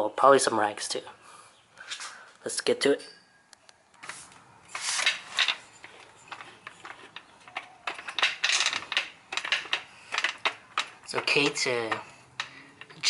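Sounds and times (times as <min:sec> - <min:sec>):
floor jack rolling on concrete: 0:04.7 - 0:13.0
metallic clicks and clatter: 0:05.0 - 0:13.0.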